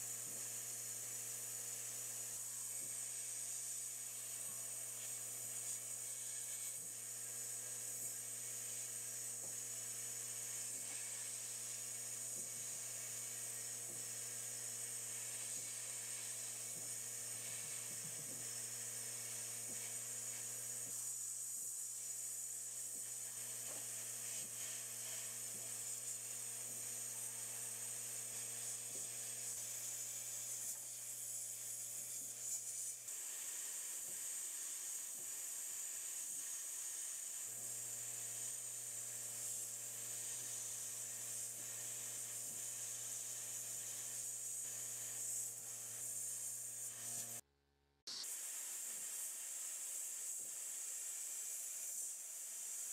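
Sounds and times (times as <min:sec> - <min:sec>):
sandblast gun hissing: 0:48.1 - 0:52.9.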